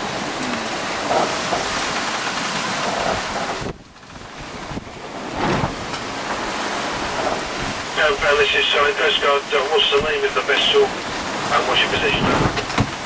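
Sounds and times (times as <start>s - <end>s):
wind buffeting microphone: 0.0s - 8.0s, 10.9s - 13.0s
water rushing past hull: 0.0s - 13.0s.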